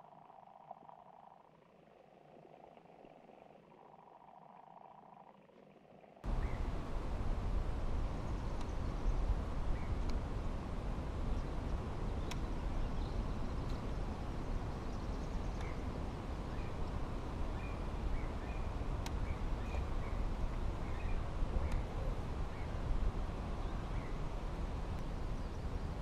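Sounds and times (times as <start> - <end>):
low outdoor rumble: 6.2 - 26.0.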